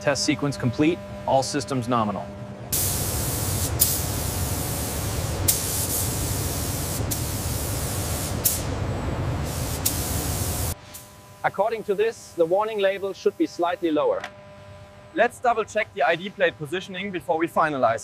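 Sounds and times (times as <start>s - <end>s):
spray nozzle hissing: 2.8s - 8.8s, 9.4s - 10.8s.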